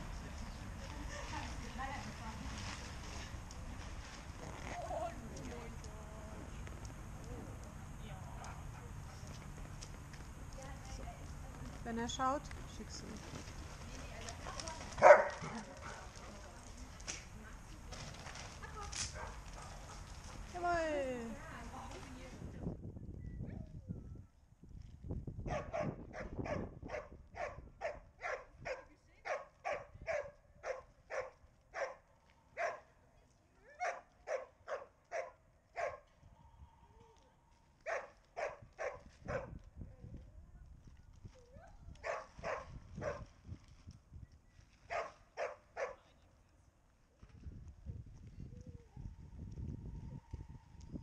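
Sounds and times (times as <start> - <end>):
wind rumbling on microphone: 0.0 - 28.9, 36.1 - 45.9, 47.1 - 51.0
dog barking: 15.0 - 15.6, 25.5 - 32.0, 32.6 - 32.9, 33.8 - 36.0, 37.8 - 39.5, 42.0 - 43.2, 44.9 - 46.0.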